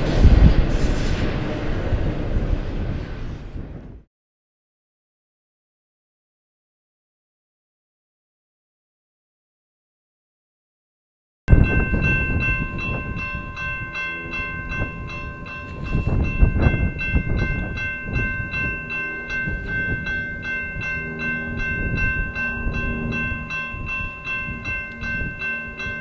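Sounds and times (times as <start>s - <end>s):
freight train rumbling past: 0.0s - 4.0s, 11.5s - 26.0s
crossing bell ringing: 11.5s - 26.0s.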